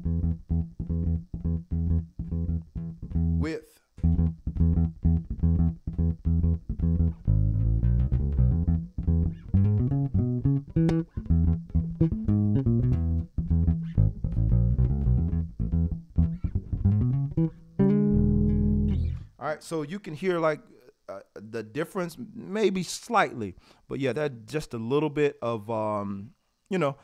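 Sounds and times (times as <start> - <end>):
electric bass guitar plucked: 0.0 - 19.4.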